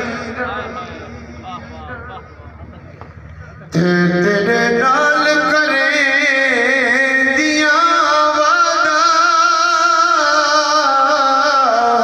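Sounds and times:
man singing a lament: 0.0 - 1.0, 3.7 - 12.0.

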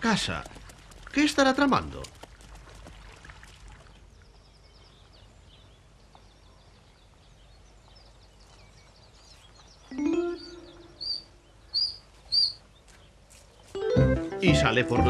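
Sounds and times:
small birds chirping: 3.8 - 13.8
background music: 9.9 - 11.1, 13.8 - 15.0.

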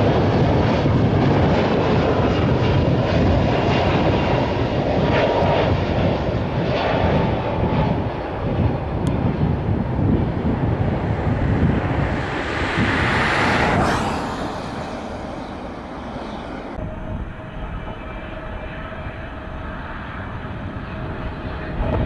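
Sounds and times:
jet engines rushing: 0.0 - 17.1
steady jet engine sound: 8.8 - 16.8.

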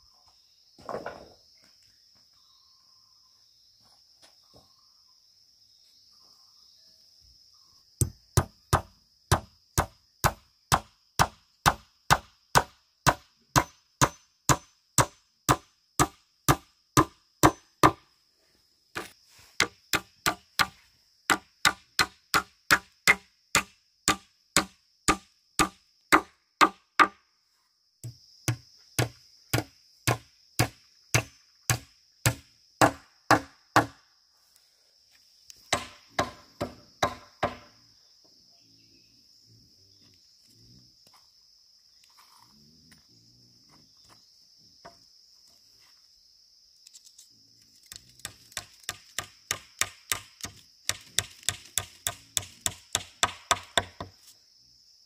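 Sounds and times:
insects buzzing: 0.0 - 55.0
chopping strikes on wood: 8.0 - 18.0, 19.0 - 27.2, 28.0 - 34.0, 35.7 - 37.7, 48.2 - 54.2.

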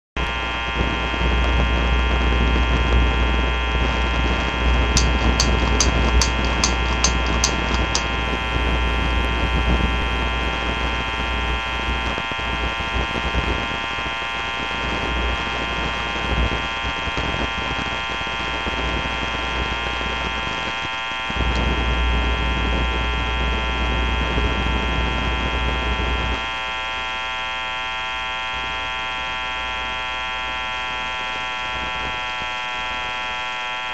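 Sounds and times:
electrical hum and buzz: 0.2 - 33.9
light evenly spaced clicks: 5.0 - 8.1.

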